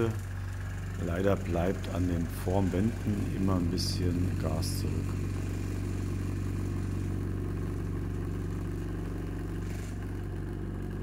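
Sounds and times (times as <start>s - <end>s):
vibration table motor humming: 0.0s - 11.0s.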